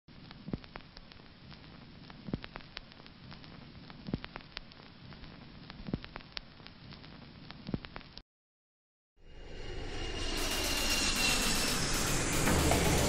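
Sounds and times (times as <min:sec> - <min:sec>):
vinyl hiss with crackles: 0:00.1 - 0:08.2.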